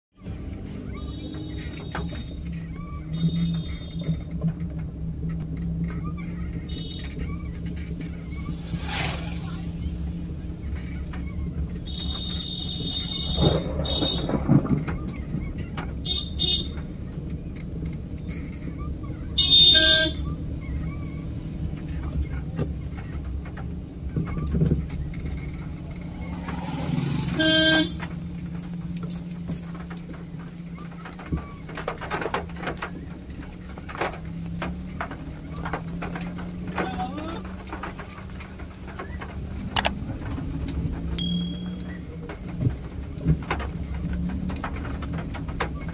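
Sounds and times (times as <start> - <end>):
vehicle and road rumble: 0.1 - 45.9
vehicle horn honking: 19.4 - 20.2, 27.4 - 28.0
short high beeps: 41.2 - 41.9.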